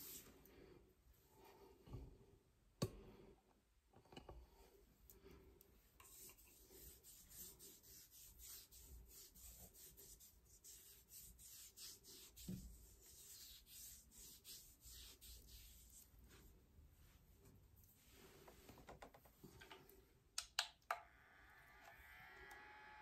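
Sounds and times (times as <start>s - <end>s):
hand rubbing skin swishing: 6.1s - 18.6s.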